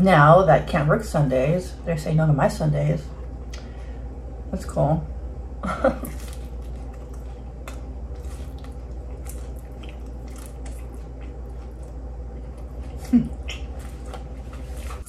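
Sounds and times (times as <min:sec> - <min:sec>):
steady low hum: 0:00.0 - 0:15.0
person chewing food: 0:05.9 - 0:15.0.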